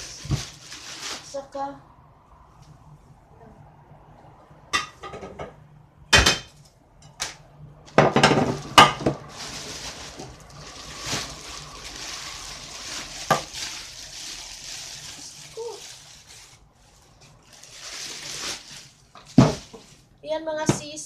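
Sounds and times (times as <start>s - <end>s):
plastic bags crinkling: 0.0s - 1.6s, 8.0s - 20.2s.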